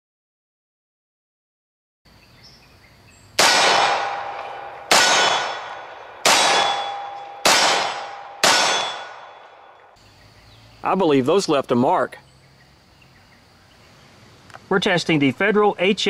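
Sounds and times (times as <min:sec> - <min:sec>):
pistol shots: 0:03.4 - 0:09.8
steel target clanging: 0:03.4 - 0:09.8.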